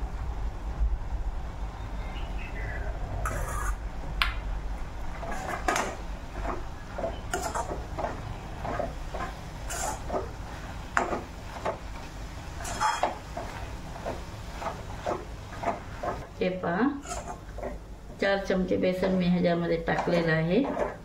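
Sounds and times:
steel spoon scraping bowl: 0:03.3 - 0:03.8, 0:05.2 - 0:11.8, 0:12.6 - 0:16.3, 0:17.0 - 0:17.8.

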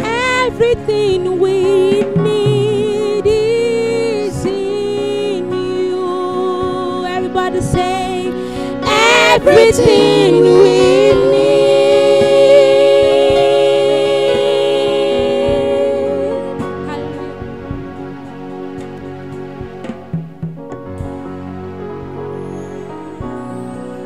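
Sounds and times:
women singing gospel song: 0:00.0 - 0:17.5
held instrumental chords: 0:08.8 - 0:24.0.

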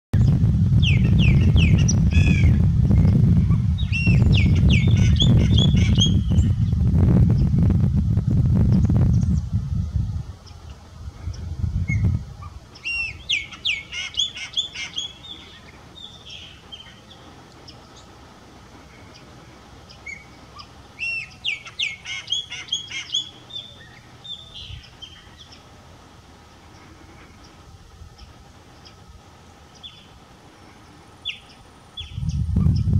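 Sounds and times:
steady low rumble: 0:00.1 - 0:32.9
blackbird whistling song: 0:00.2 - 0:06.6, 0:12.8 - 0:18.1, 0:19.9 - 0:25.6, 0:31.2 - 0:32.9.

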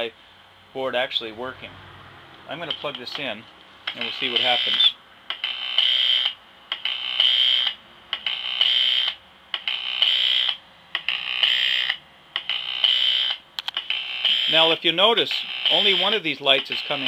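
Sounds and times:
high electrical buzz: 0:03.8 - 0:17.0.

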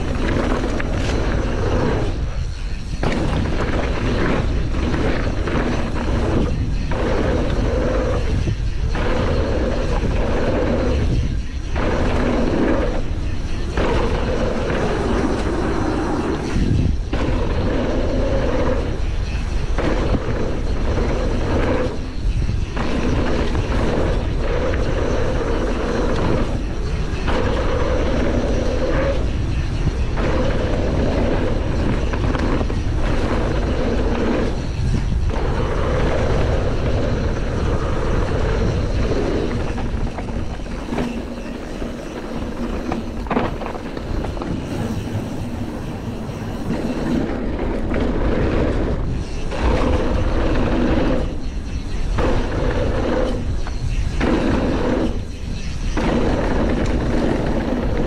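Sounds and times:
tyres rolling over dirt: 0:00.0 - 0:58.0
wind on microphone: 0:00.0 - 0:58.0.

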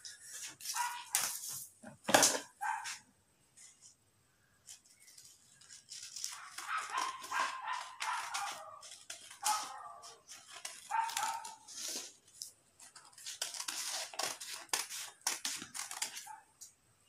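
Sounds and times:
paper rustling: 0:00.1 - 0:02.2, 0:04.6 - 0:16.4
scissors snipping paper: 0:04.7 - 0:16.4.

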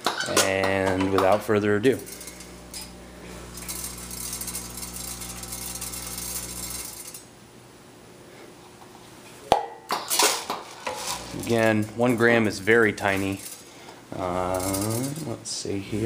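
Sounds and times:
vibratory feeder buzzing: 0:01.4 - 0:07.6, 0:10.9 - 0:16.0.

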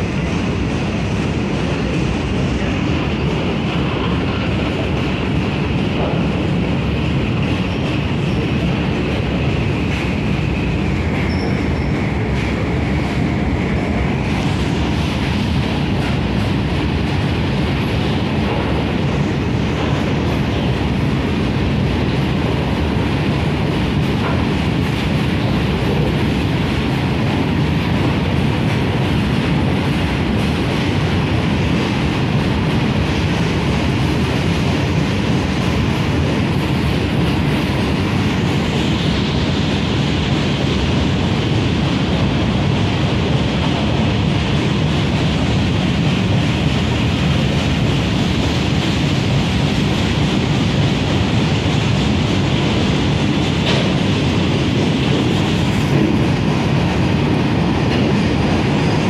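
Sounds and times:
clickety-clack over rail joints: 0:00.0 - 0:59.0
freight train wheels rumbling: 0:00.0 - 0:59.0
high wheel squeal: 0:11.2 - 0:12.0.

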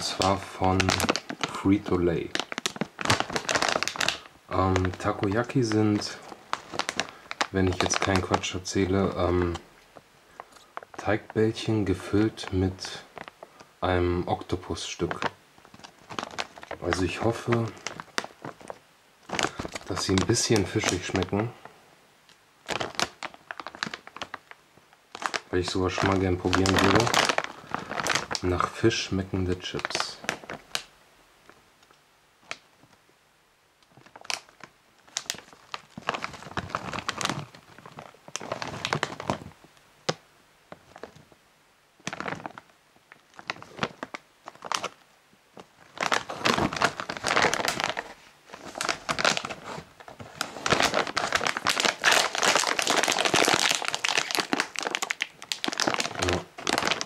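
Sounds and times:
plastic bag tearing open: 0:00.0 - 0:09.6, 0:14.3 - 0:21.6, 0:22.6 - 0:30.9, 0:33.9 - 0:39.5, 0:42.0 - 0:45.0, 0:45.8 - 0:57.0
plastic snack bag crinkling: 0:00.0 - 0:09.7, 0:10.3 - 0:21.7, 0:22.6 - 0:30.9, 0:31.5 - 0:33.0, 0:33.8 - 0:41.4, 0:42.0 - 0:57.0.

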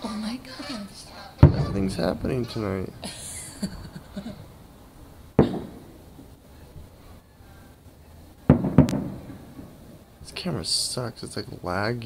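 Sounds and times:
distant fireworks bangs: 0:01.2 - 0:06.4, 0:08.4 - 0:10.1.

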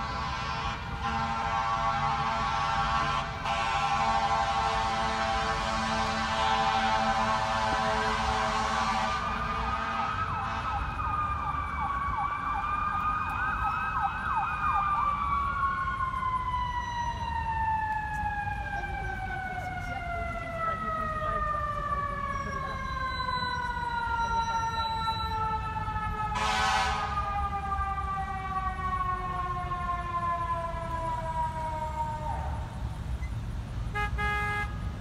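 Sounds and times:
steady horn: 0:00.0 - 0:10.8, 0:26.4 - 0:27.2, 0:33.9 - 0:34.9
siren wailing: 0:00.0 - 0:32.8.

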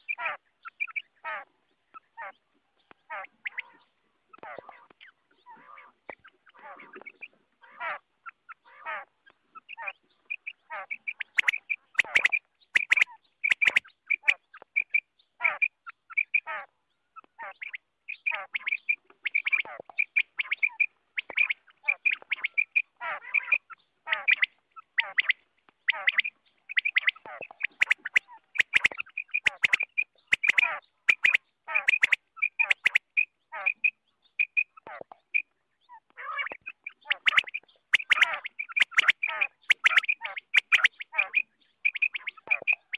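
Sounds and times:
quail calling: 0:00.0 - 0:42.9
sharp clicks: 0:11.4 - 0:13.8, 0:27.8 - 0:33.1, 0:37.2 - 0:41.0.

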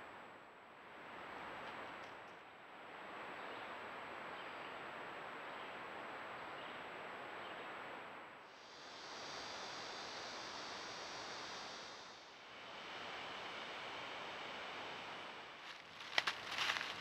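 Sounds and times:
microphone hiss: 0:00.0 - 0:17.0
thin high whine: 0:08.6 - 0:16.9.

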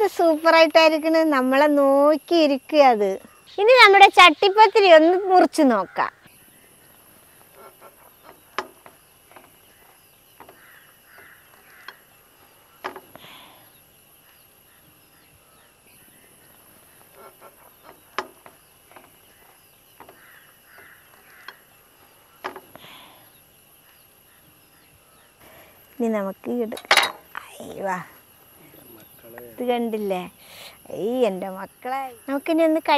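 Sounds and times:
faint bird calls: 0:03.1 - 0:26.1.

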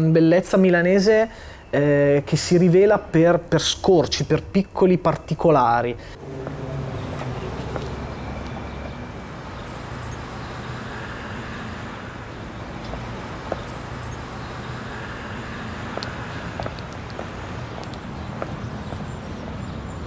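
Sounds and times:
rumble of car traffic: 0:01.0 - 0:20.0
vehicle passing: 0:06.1 - 0:20.0.

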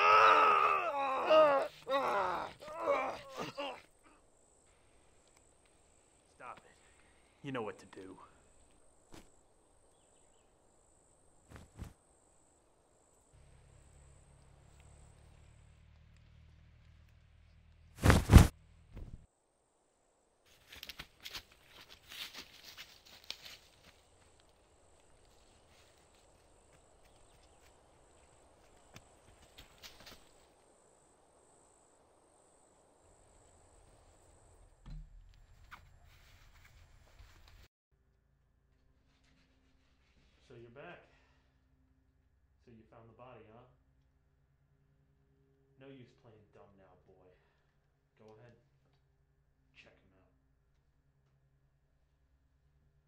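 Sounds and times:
faint insect chirping: 0:00.2 - 0:16.0, 0:19.3 - 0:37.7.

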